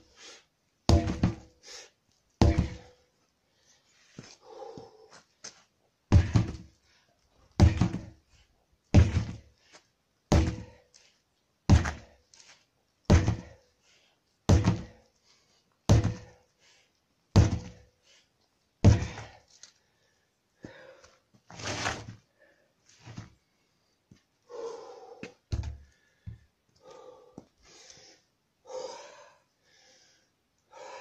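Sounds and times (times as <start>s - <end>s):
sledgehammer thudding on tyres: 0.9s - 1.6s, 2.4s - 3.0s, 6.1s - 6.8s, 7.6s - 8.2s, 8.9s - 9.5s, 10.3s - 10.8s, 11.7s - 12.2s, 13.1s - 13.6s, 14.5s - 15.0s, 15.9s - 16.4s, 17.3s - 17.9s, 18.8s - 19.4s.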